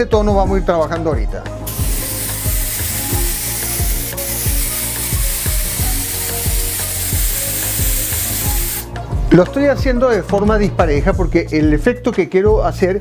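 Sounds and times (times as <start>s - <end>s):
background music with steady beat: 0.0s - 13.0s
airbrush spraying hiss: 1.7s - 8.9s.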